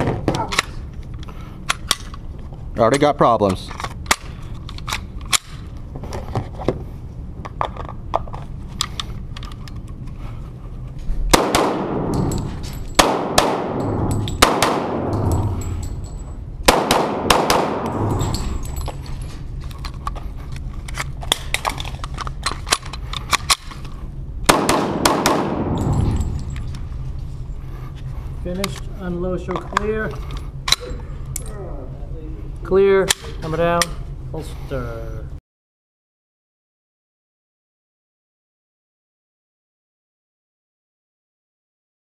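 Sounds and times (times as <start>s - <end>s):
pistol shots with echo: 11.3s - 15.3s, 16.6s - 18.3s, 24.5s - 26.0s.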